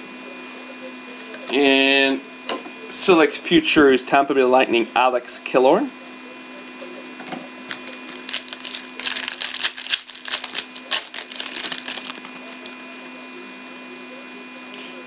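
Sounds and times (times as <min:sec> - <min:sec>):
wrapper tearing and crinkling: 0:07.7 - 0:12.8.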